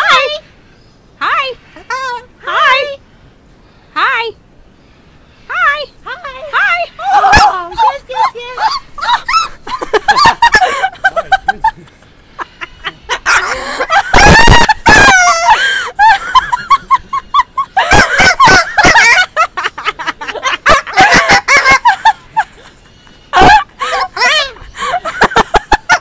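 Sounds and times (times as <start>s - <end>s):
cockatoo screeching: 12.4s - 15.9s
cockatoo squawking: 12.4s - 19.4s.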